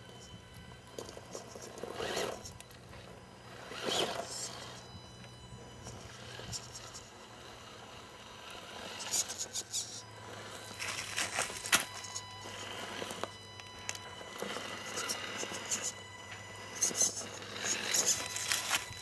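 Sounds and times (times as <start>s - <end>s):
electric motor and gearbox hum: 0.0s - 19.0s
tyres crackling over dry leaves: 10.3s - 13.3s, 17.6s - 19.0s.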